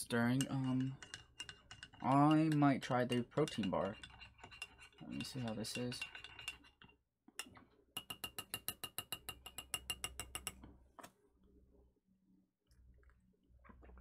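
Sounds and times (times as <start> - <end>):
spoon clinking in ceramic mug: 0.3 - 6.8, 7.4 - 10.6.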